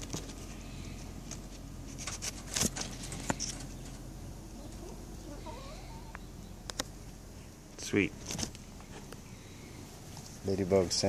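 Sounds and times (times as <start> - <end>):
phone brushing against leaves: 0.0 - 3.8
faint wavering bird call: 4.5 - 6.6.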